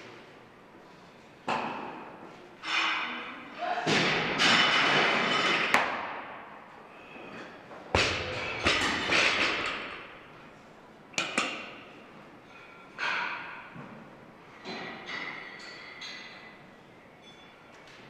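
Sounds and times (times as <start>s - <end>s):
barbell thudding on platform: 8.0s - 10.0s
metallic ring: 17.2s - 17.8s.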